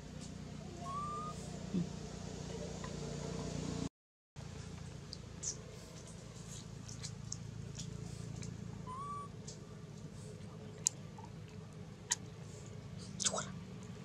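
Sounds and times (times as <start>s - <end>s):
low steady hum: 0.0s - 14.0s
animal squeak: 0.7s - 1.4s, 8.9s - 9.3s.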